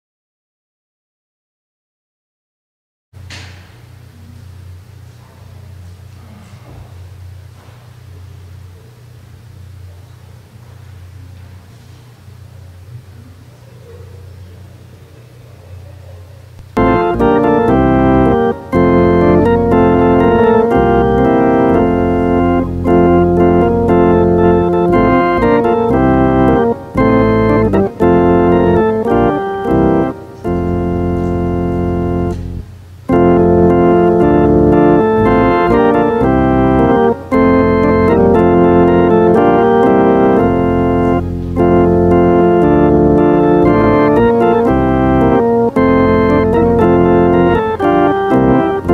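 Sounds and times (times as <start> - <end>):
church organ chords: 16.6 - 48.9.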